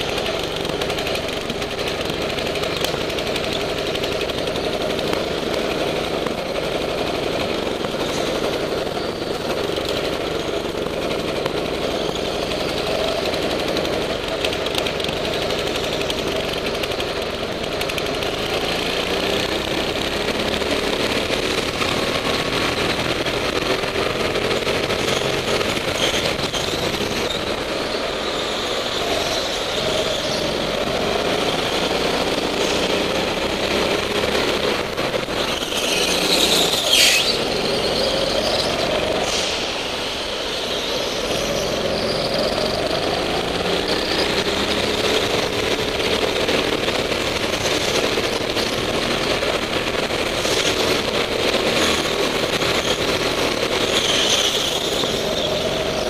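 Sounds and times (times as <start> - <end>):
go-kart engine revving: 0.0 - 56.0.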